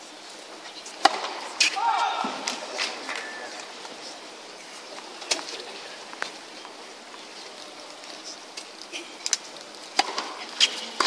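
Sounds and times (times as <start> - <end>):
murmur of crowd: 0.0 - 11.0
tennis ball knocks: 10.0 - 10.4.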